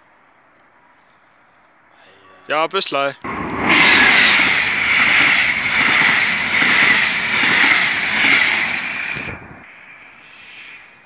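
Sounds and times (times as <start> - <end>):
low clatter of train: 3.2 - 9.7
train wheels rushing on rails: 3.2 - 10.9.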